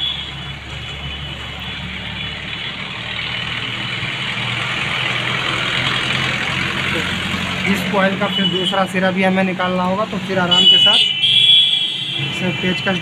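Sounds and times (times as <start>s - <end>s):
engine running with low hum: 1.4s - 8.0s.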